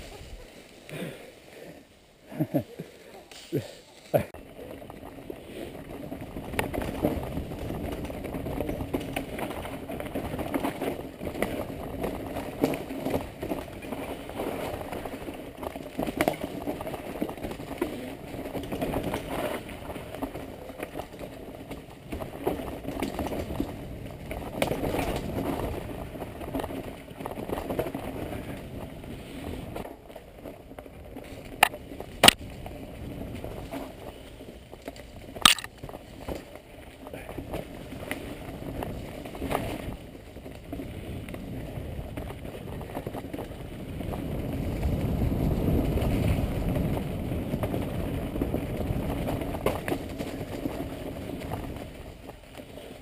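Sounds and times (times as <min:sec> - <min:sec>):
bike tyres rumbling over leaves: 0:00.0 - 0:53.0
bike rattling and clicking: 0:03.3 - 0:53.0
sharp clicks: 0:35.4 - 0:35.7.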